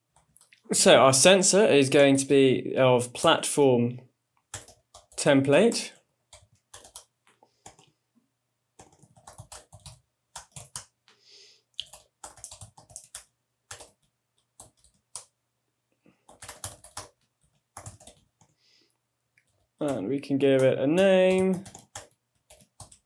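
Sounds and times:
keyboard typing: 4.4 - 5.3, 6.3 - 8.0, 8.7 - 11.1, 11.8 - 15.4, 16.2 - 18.6, 19.4 - 23.0.

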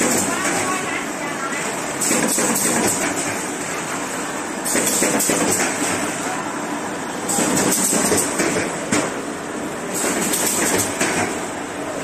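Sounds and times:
machine clattering and knocking: 0.0 - 0.9, 1.8 - 3.9, 4.6 - 6.1, 7.3 - 9.2, 9.9 - 11.5.

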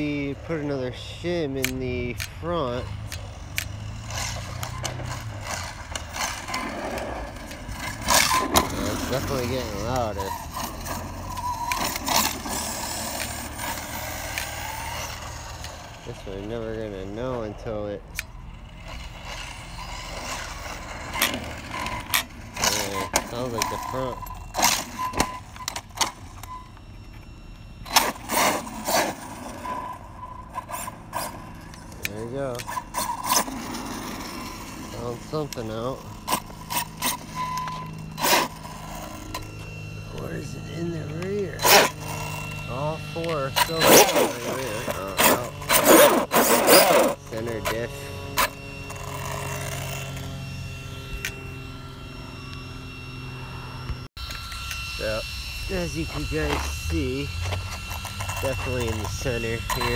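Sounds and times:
rc truck motor surging: 0.0 - 59.9
sharp clicks: 1.6 - 2.4, 3.0 - 3.8.

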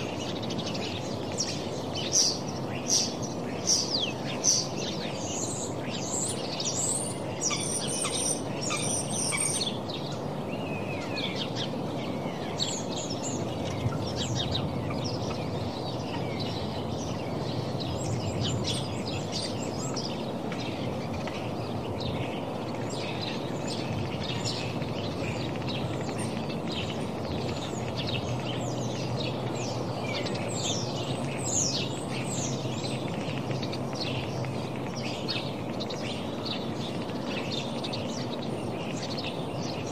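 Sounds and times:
birds chirping: 0.0 - 39.9.

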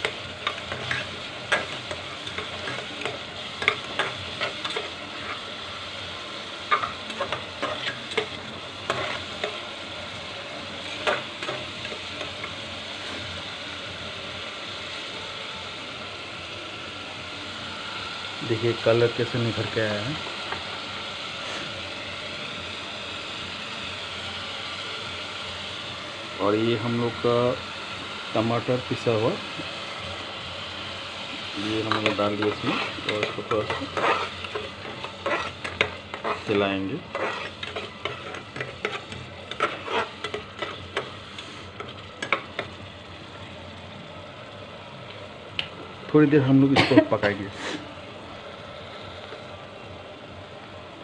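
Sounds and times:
metal spatula scraping pot: 0.0 - 5.4, 6.7 - 9.6, 31.9 - 41.1
paste sizzling in oil: 0.0 - 50.3.

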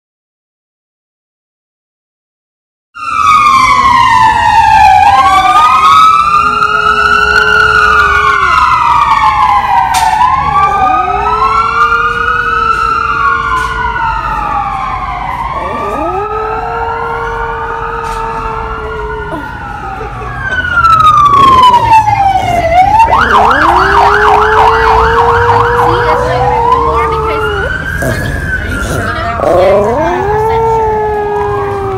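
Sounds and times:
dog howling: 5.3 - 8.9, 10.5 - 13.4, 15.6 - 19.6, 23.1 - 28.4, 29.0 - 31.9.

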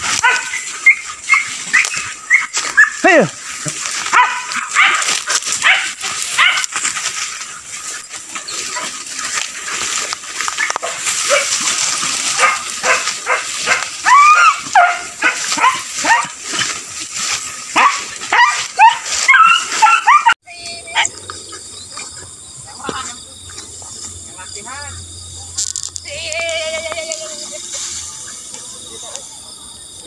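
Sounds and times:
brush rustling and snapping: 0.0 - 20.2, 25.6 - 28.7
beagles baying and yelping: 0.0 - 24.2.

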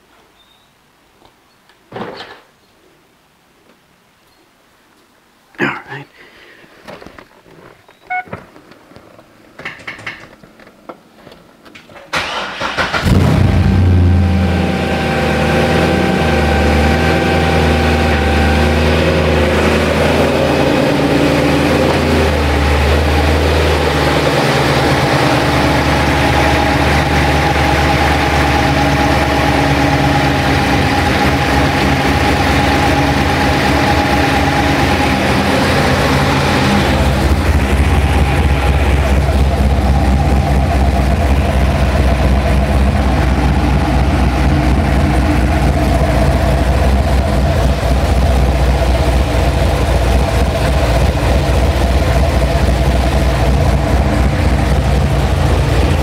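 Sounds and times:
car engine starting: 12.0 - 56.0
car engine idling: 12.1 - 56.0.

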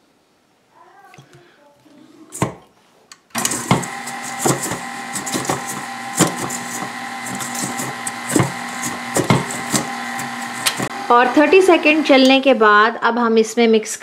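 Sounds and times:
beater clicks and knocks: 3.4 - 10.9
stand mixer motor whine: 3.4 - 12.2.

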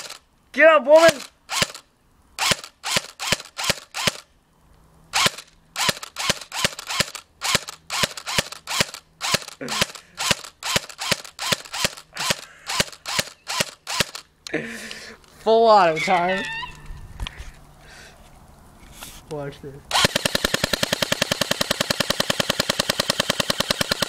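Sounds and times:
airsoft rifle shots: 0.0 - 0.2, 1.0 - 1.8, 2.4 - 4.2, 5.2 - 14.2, 19.9 - 24.0.

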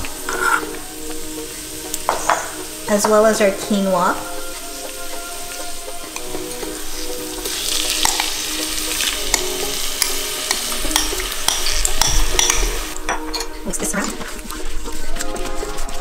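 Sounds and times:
grains sizzling in hot pot: 0.0 - 16.0
metal spoon tapping glass bowl: 9.3 - 13.5.

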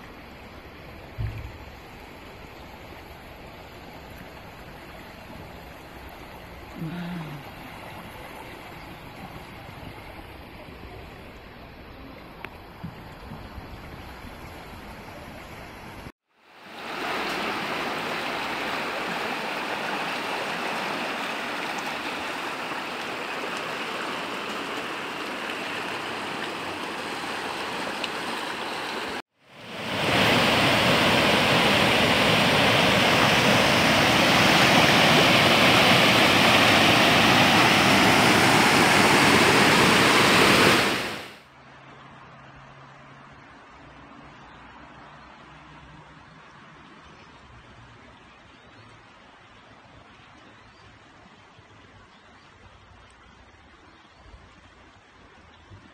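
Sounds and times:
rushing floodwater: 0.0 - 55.9
torrential rain: 16.4 - 41.4.

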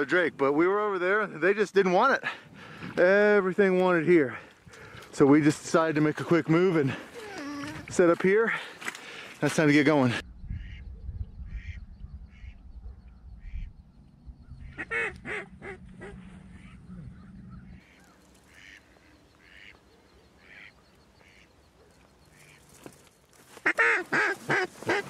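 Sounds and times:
ducks quacking: 10.2 - 13.8, 14.4 - 21.6, 22.2 - 22.8, 23.5 - 25.0
low rumble: 10.2 - 17.8.

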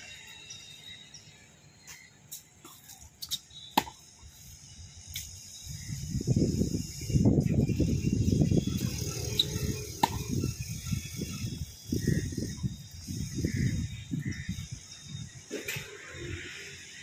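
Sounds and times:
tennis racket hitting ball: 3.8 - 4.0, 10.0 - 10.2
wind on microphone: 4.8 - 16.5.

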